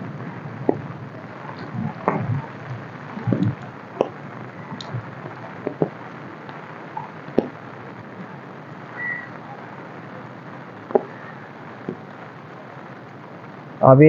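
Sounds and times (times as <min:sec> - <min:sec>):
rain on wet pavement: 0:00.0 - 0:14.0
sharp taps: 0:05.6 - 0:05.9
high whistle-like tone: 0:08.9 - 0:09.5.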